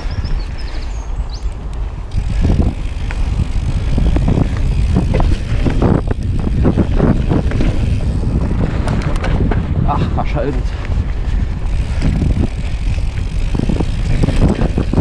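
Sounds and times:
bike tyre noise on dirt: 0.0 - 15.0
wind rumble on microphone: 0.0 - 15.0
bike knocking and rattling: 1.4 - 15.0.

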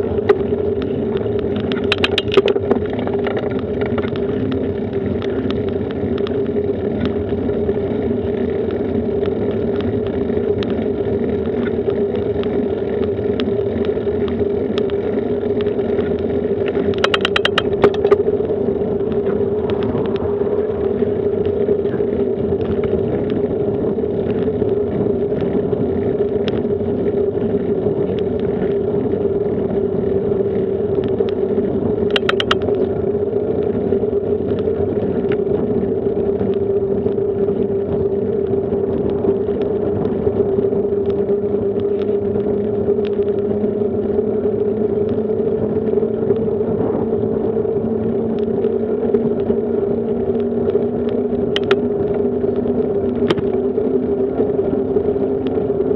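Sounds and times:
bicycle rolling on asphalt: 0.0 - 55.9
constant hum: 0.0 - 55.9
quick clicks: 32.1 - 32.7.

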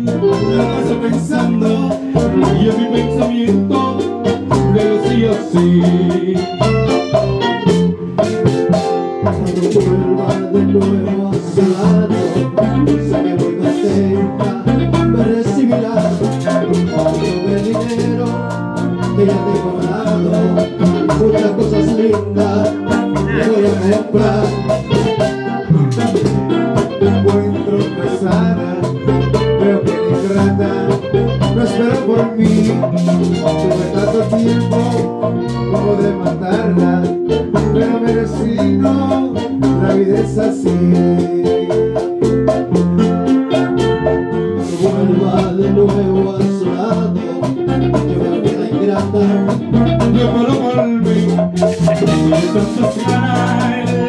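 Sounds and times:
men singing into microphones: 0.0 - 7.6, 9.2 - 42.6, 44.6 - 54.0
bass guitar: 0.0 - 54.0
guitar: 0.0 - 54.0
percussion beat: 0.0 - 54.0.

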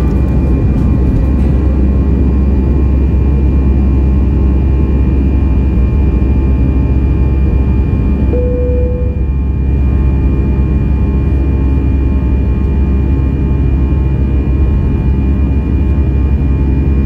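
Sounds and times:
aircraft cabin engine rumble: 0.0 - 17.0
faint steady whine: 6.2 - 13.3.

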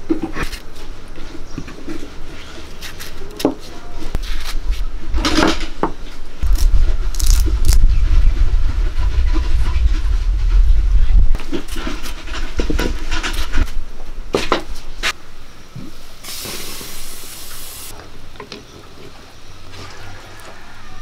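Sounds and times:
heavy deep rumble: 6.4 - 14.0.

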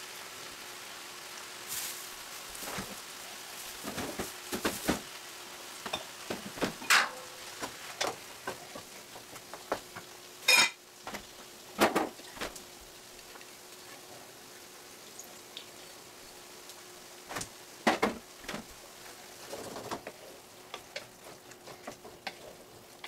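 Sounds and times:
sauce sizzling in a skillet: 0.0 - 23.0
wooden spoon scraping a pan: 18.6 - 22.7.

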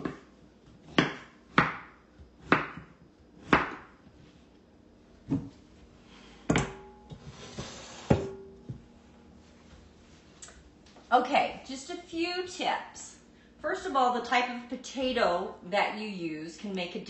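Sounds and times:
knife chopping on cutting board: 0.9 - 4.0.

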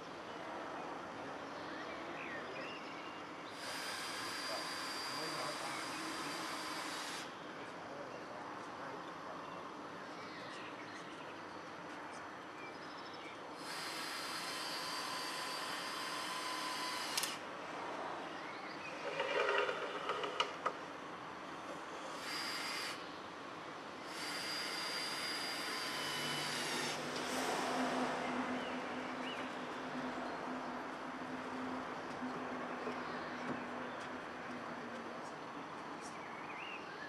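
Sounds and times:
cordless drill running: 3.6 - 7.3, 13.6 - 17.4, 22.0 - 23.0, 24.0 - 27.5
sharp knocks and clatter: 19.0 - 20.8.

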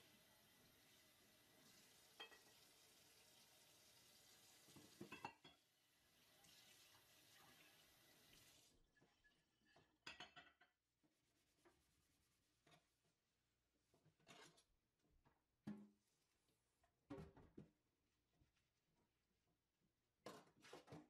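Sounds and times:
dishes and glassware clinking: 2.2 - 2.6, 5.0 - 5.6, 9.7 - 10.8
tap water splashing into sink: 4.6 - 5.3.

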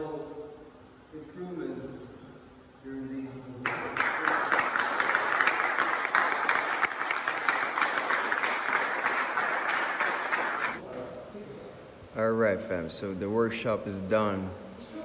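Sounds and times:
audience clapping: 3.6 - 10.8.

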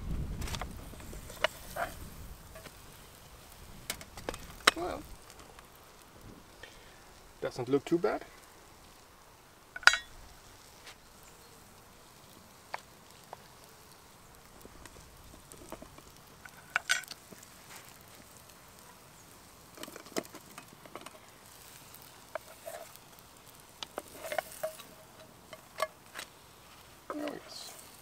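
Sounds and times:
utensils tapping frying pan: 9.8 - 10.1, 14.8 - 18.0, 19.7 - 26.3.

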